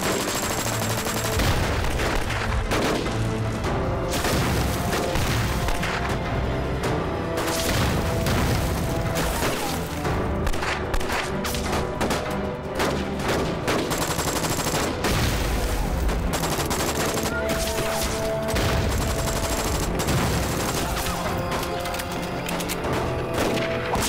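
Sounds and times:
rapid gunfire: 0.0s - 3.3s, 4.1s - 6.0s, 10.4s - 21.8s
film music score: 0.0s - 24.0s.

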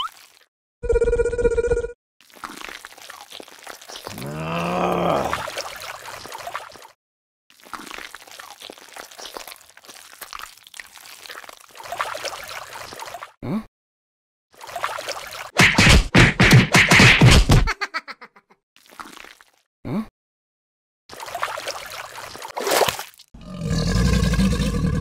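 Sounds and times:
squelching wet mud: 2.2s - 6.9s, 7.5s - 13.3s, 21.1s - 23.3s
cartoon sound effect: 17.6s - 18.4s.

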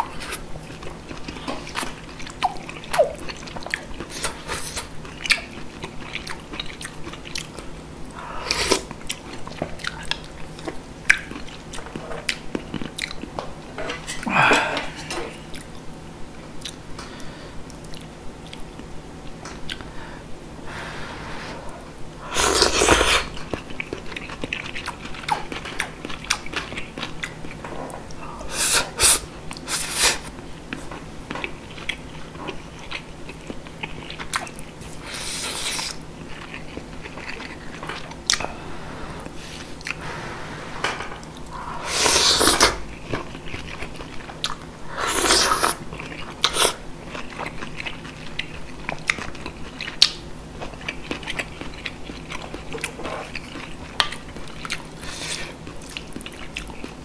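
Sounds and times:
wet chewing: 0.0s - 13.4s, 22.4s - 38.6s, 41.2s - 57.0s
slurping soup and noodles: 20.7s - 23.4s, 28.4s - 30.3s, 34.9s - 36.0s, 38.5s - 43.3s, 44.8s - 45.8s, 46.4s - 46.8s.

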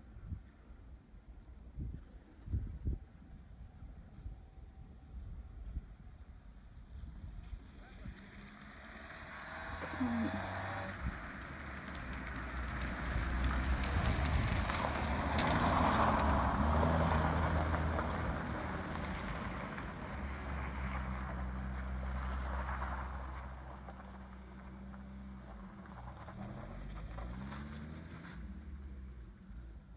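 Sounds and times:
tyres on wet track: 6.9s - 29.9s
car engine driving past: 7.2s - 29.6s.

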